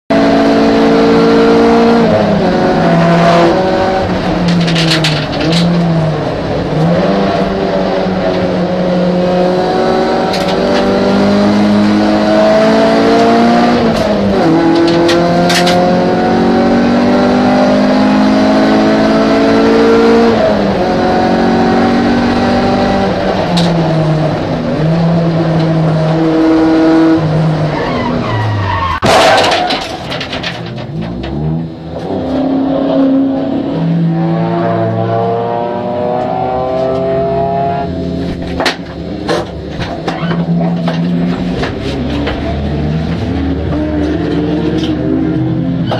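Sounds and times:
race car engine revving: 0.1s - 29.5s, 30.1s - 45.9s
car crash impact: 28.8s - 31.4s.

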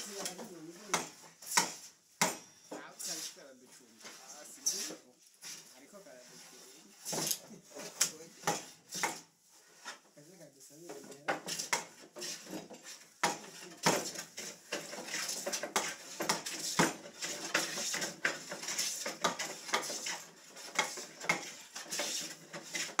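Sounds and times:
woodworking tools knocking on wood: 0.0s - 2.9s, 7.1s - 9.3s, 10.9s - 23.0s.

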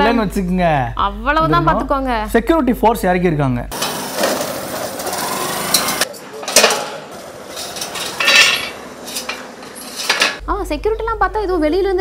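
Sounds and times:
metal barricade rattling and scraping: 4.7s - 10.4s
sharp metal clanks: 5.7s - 10.4s.

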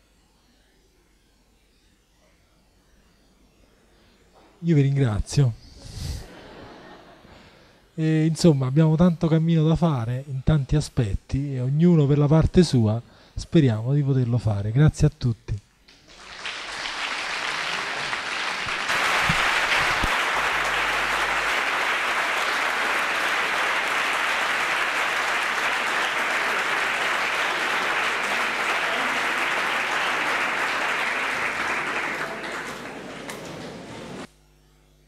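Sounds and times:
audience applause: 15.9s - 34.3s.

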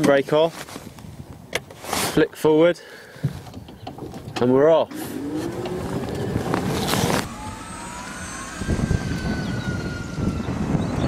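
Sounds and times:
tyres rumbling on grass: 4.2s - 9.6s
electric motor whine: 4.9s - 11.0s.

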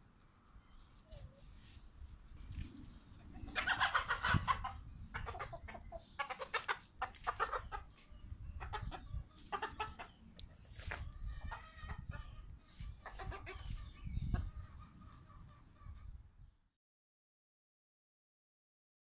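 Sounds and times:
hens clucking: 2.5s - 16.2s.

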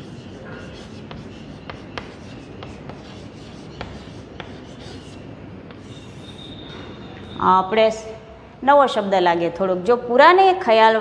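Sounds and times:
chalk scratching on blackboard: 0.0s - 6.7s.

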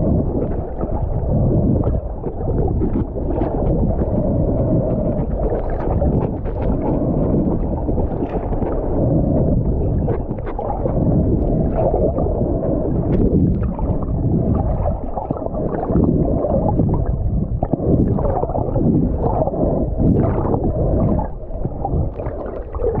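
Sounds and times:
muffled underwater rumble: 0.0s - 23.0s.

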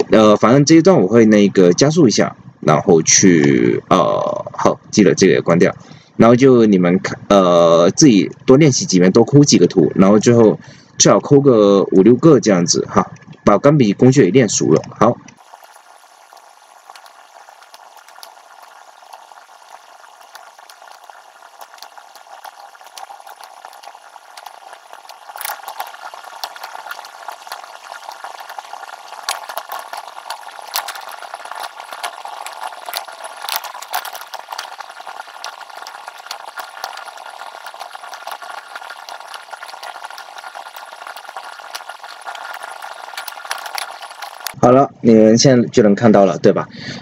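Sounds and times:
room hiss: 15.4s - 44.7s.

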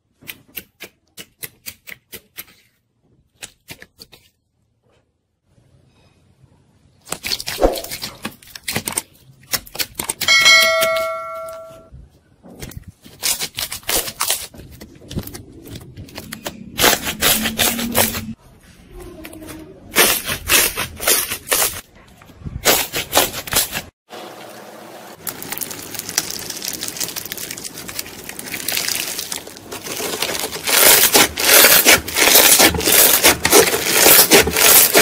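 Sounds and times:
ringing chime-like tone: 10.3s - 11.9s
slime crackling and squelching: 25.2s - 35.0s.

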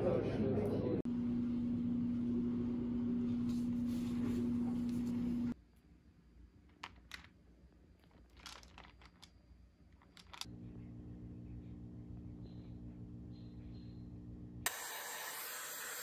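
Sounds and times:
steady low hum: 1.0s - 6.6s, 10.4s - 14.7s
handling crinkles and clicks: 6.7s - 10.5s.

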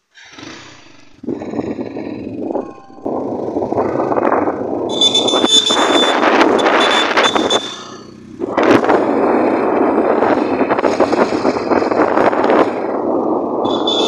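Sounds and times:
motorcycle road and engine noise: 0.0s - 14.0s
wind rushing over microphone: 0.3s - 14.0s
steady high tone: 0.6s - 8.0s.

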